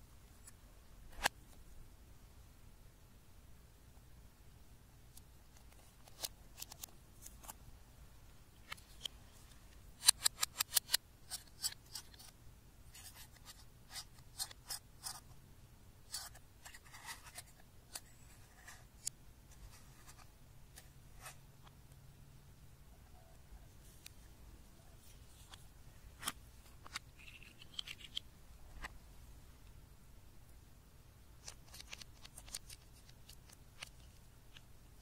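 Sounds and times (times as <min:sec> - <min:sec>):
metal pick clicking and scraping: 0:10.0 - 0:12.3, 0:26.2 - 0:28.3.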